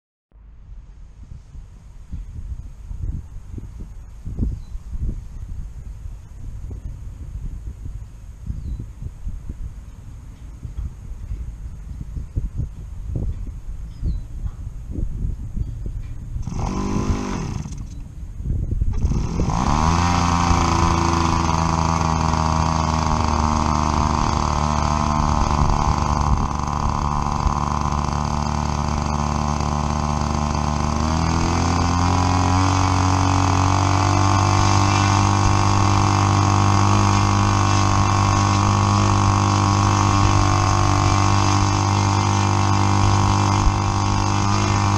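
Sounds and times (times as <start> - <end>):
model airplane engine running: 16.4 - 18.0, 18.8 - 44.9.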